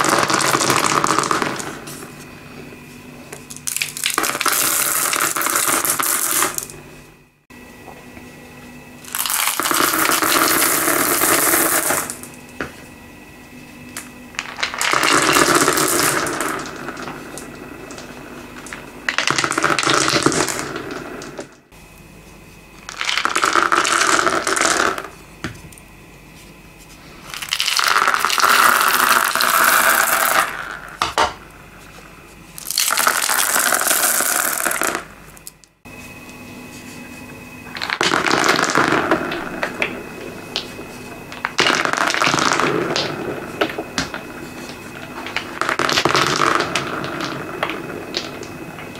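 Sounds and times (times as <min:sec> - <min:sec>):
beads clattering onto floor: 0:03.5 - 0:06.7, 0:27.3 - 0:31.3, 0:32.6 - 0:35.1, 0:37.7 - 0:39.8, 0:44.8 - 0:48.6.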